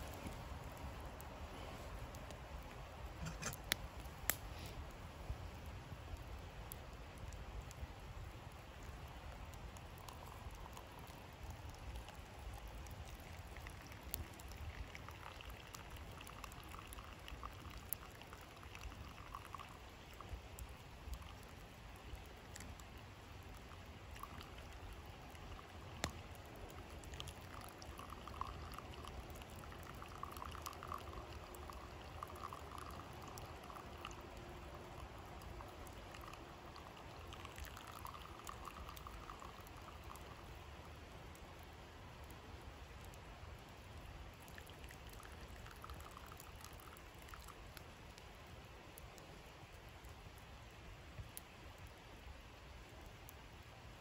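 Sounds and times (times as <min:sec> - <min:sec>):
faint coffee trickle: 0:00.0 - 0:54.0
water pouring in thin stream: 0:00.0 - 0:54.0.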